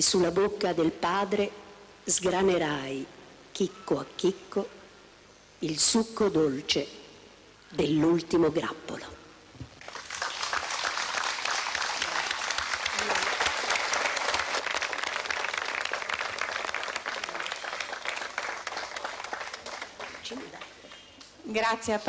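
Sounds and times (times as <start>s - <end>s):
audience applause: 9.8s - 21.1s.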